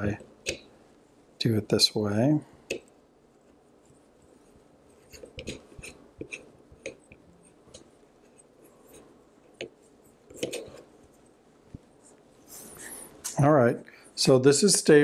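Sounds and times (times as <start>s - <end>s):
light clicks and scrapes of handling: 2.6s - 13.4s.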